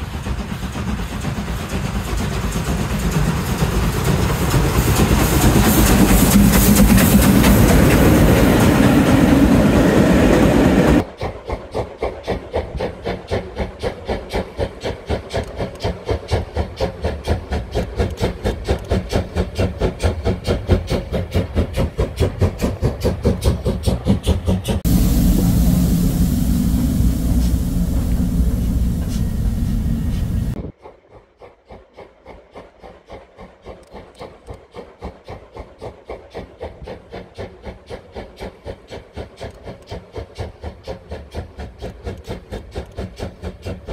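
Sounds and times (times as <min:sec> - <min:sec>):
steam locomotive chuffing: 0:00.0 - 0:43.9
steady rushing noise: 0:24.8 - 0:30.6.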